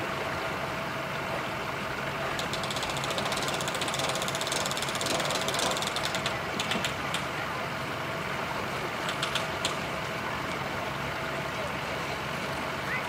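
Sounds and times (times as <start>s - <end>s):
vehicle engine idling: 0.0s - 13.0s
winch ratchet clicking: 2.3s - 7.3s, 9.0s - 9.8s.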